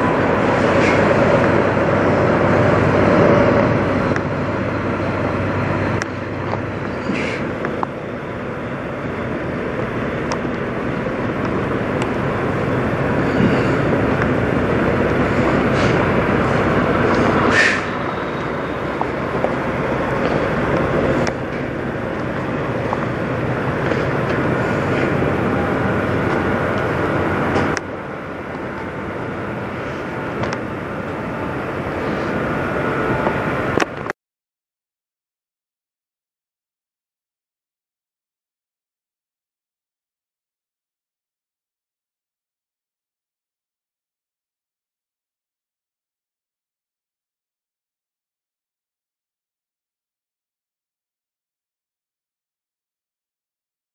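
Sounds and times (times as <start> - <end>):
truck diesel engine running: 0.0 - 34.1.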